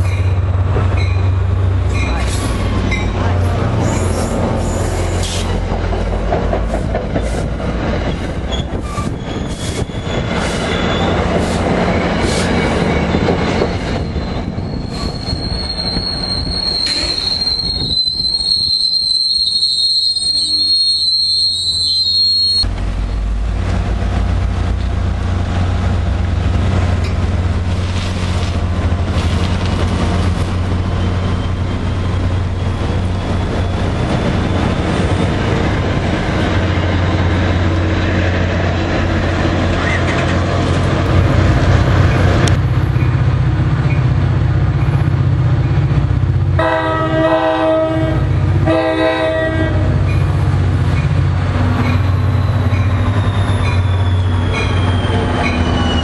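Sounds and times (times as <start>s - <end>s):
train rolling past: 0.0s - 56.0s
train horn blasts: 46.6s - 50.0s.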